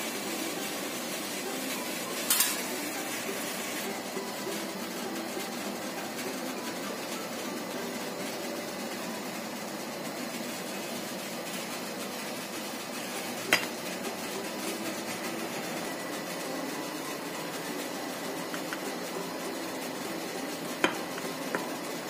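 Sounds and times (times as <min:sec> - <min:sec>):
gas burner hissing: 0:00.0 - 0:22.0
pot boiling: 0:00.0 - 0:22.0
metal cake tin clinking: 0:02.2 - 0:02.7.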